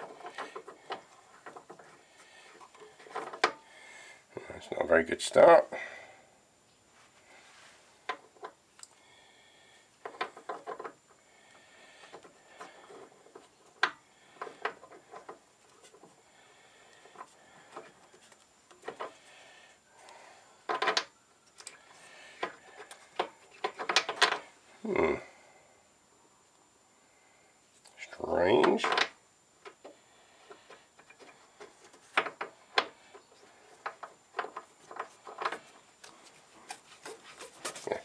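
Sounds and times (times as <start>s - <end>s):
metal clicks taps and scrapes: 0.0s - 3.6s, 16.9s - 19.2s.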